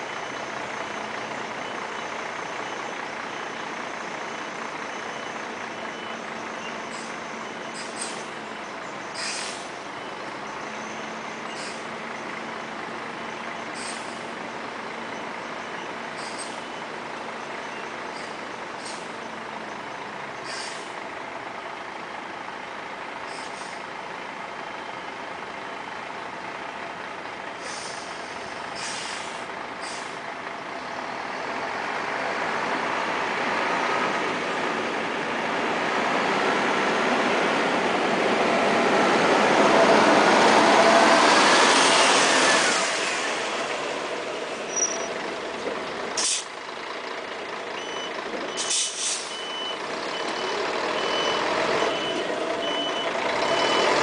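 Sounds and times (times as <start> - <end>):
bus diesel engine running: 0.0 - 54.0
air brake hisses: 7.8 - 8.3, 9.2 - 9.7, 13.8 - 14.2, 20.4 - 21.0, 27.6 - 30.2, 46.2 - 46.5, 48.6 - 49.3.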